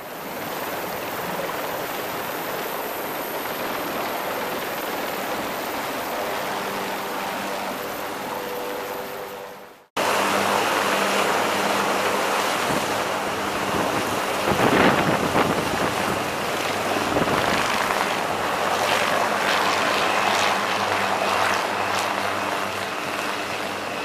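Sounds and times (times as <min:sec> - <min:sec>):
helicopter rotor and turbines: 0:00.0 - 0:24.0
wind buffeting microphone: 0:12.5 - 0:23.6.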